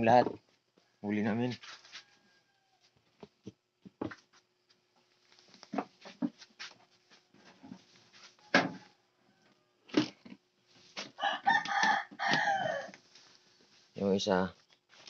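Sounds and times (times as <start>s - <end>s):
rooster crowing: 1.8s - 3.0s, 8.4s - 9.9s, 11.2s - 13.0s.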